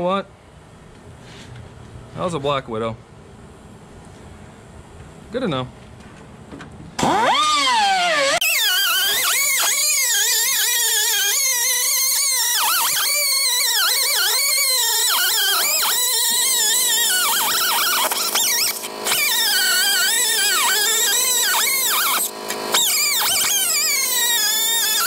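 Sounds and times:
air cut-off tool cutting steel: 0:07.0 - 0:25.0.

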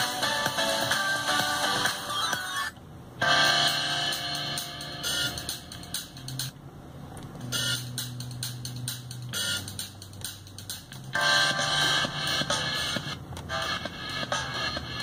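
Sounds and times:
music from car stereo: 0:00.0 - 0:06.6, 0:07.2 - 0:15.0.

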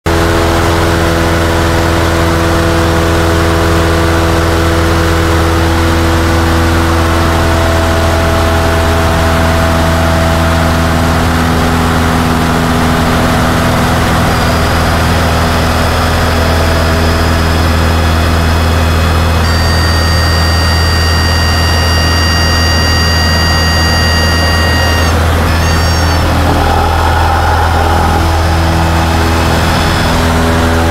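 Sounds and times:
aircraft engine and propeller droning: 0:00.1 - 0:30.9
stall warning horn whistle: 0:19.4 - 0:30.9.

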